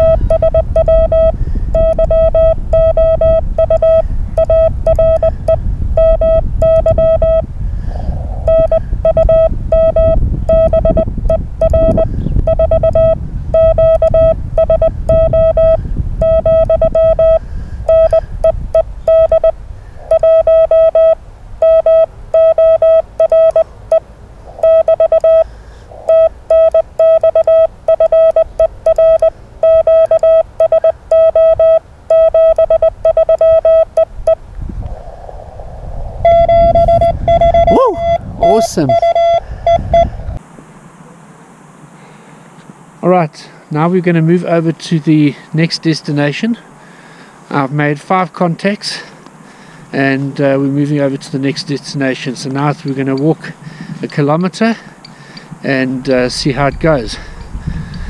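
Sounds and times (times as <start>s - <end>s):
morse code tone: 0.0s - 7.5s, 8.4s - 24.0s, 24.6s - 25.5s, 26.1s - 34.4s, 36.2s - 40.1s
low rumble: 34.2s - 40.4s.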